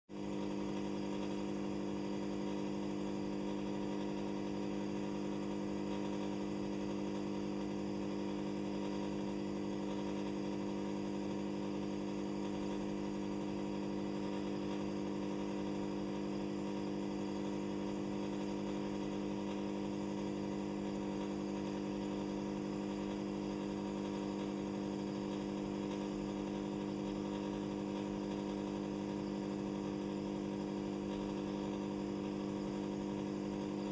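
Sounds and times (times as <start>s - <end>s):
aquarium equipment humming: 0.1s - 33.9s.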